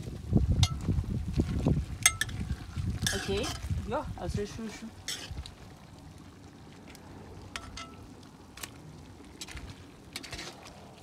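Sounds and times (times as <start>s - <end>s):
spoon stirring in a pot: 2.0s - 3.8s, 5.0s - 5.5s.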